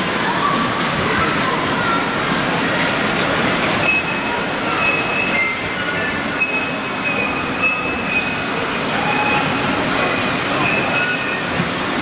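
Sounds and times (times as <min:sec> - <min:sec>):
high wheel squeals: 0:03.8 - 0:11.5.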